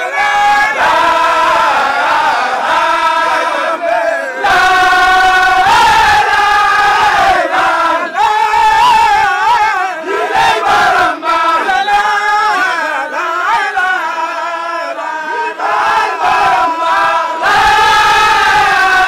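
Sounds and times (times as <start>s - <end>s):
crowd chanting in unison: 0.0s - 19.0s.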